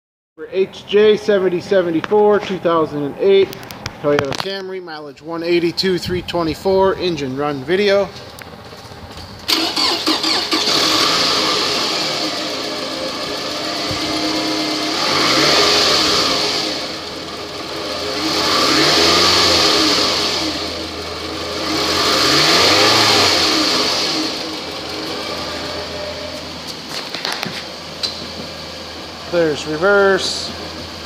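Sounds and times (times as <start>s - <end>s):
car engine revving: 8.2s - 31.0s.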